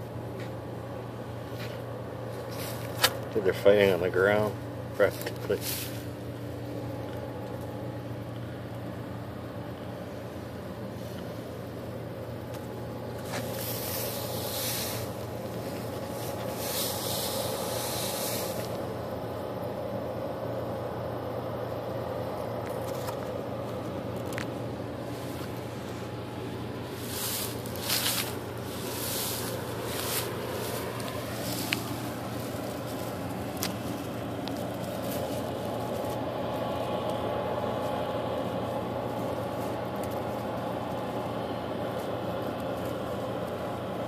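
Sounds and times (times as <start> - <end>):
low mechanical hum: 0.0 - 44.0
rustling bursts: 13.1 - 18.8, 26.8 - 36.3.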